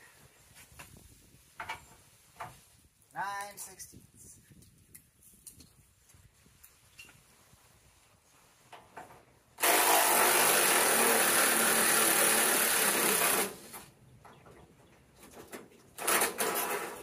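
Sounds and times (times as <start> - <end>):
power tool driving a bolt: 9.6 - 13.8, 16.0 - 17.0.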